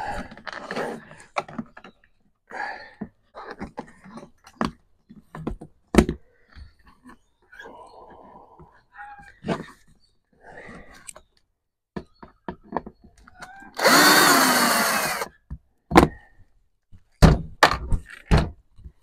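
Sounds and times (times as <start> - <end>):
power drill running: 13.8 - 15.3.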